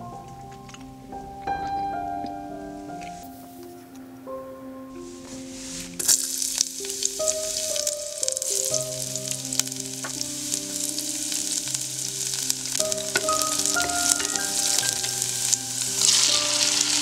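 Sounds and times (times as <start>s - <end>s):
soft background music: 0.0s - 17.0s
garlic sizzling in oil: 5.3s - 17.0s
oil crackling and popping: 6.0s - 17.0s.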